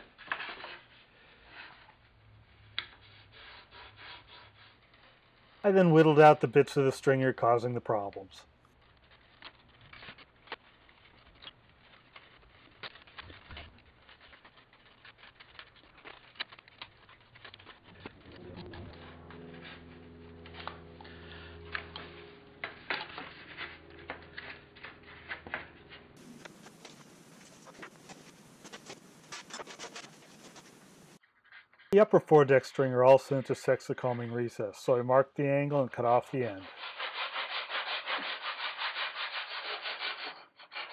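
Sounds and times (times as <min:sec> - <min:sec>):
knife shaving wood: 0:08.0 - 0:31.2
steady low hum: 0:17.9 - 0:31.2.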